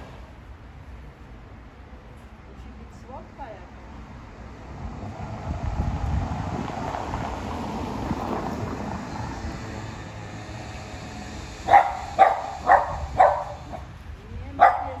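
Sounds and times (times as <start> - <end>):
small dog barking: 11.7 - 13.9, 14.6 - 15.0.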